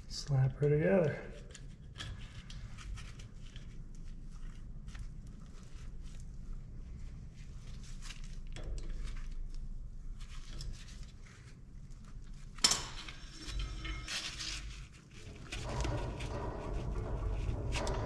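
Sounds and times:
metal clicks and scraping: 0:12.5 - 0:18.0
rubbing noise: 0:13.9 - 0:18.0.

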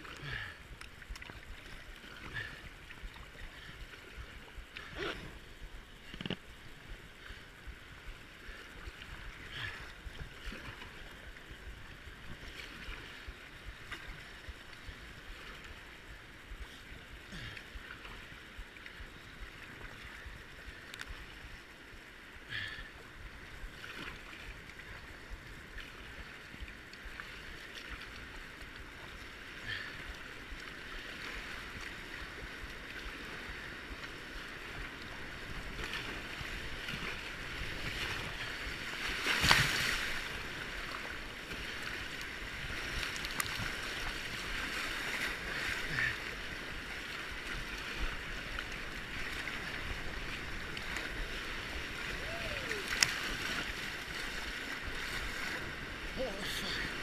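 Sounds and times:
whitewater rapids rushing: 0:47.4 - 0:54.3.

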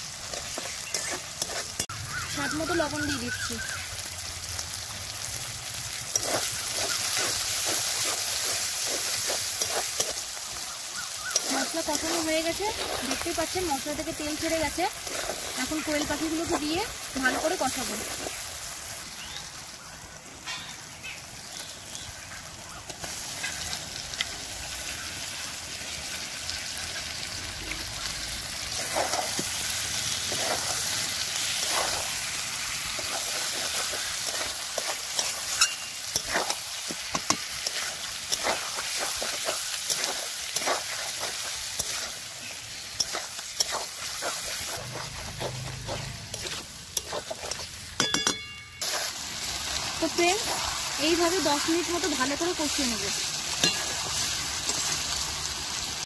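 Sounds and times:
quails sizzling in hot oil: 0:00.0 - 0:56.0
spatula scraping a wok: 0:00.1 - 0:01.9, 0:05.9 - 0:10.6, 0:11.2 - 0:18.6, 0:28.6 - 0:55.2.

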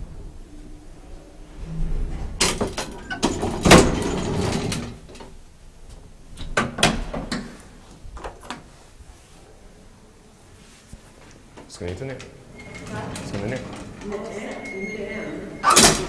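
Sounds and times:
elevator doors clattering: 0:02.1 - 0:05.3, 0:12.1 - 0:16.0
elevator door clicks: 0:12.6 - 0:16.0.

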